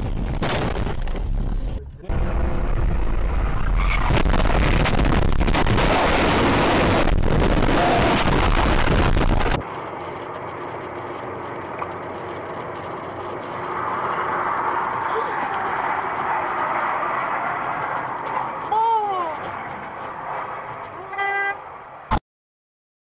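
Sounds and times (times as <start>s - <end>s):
car road noise on highway: 5.3s - 22.1s.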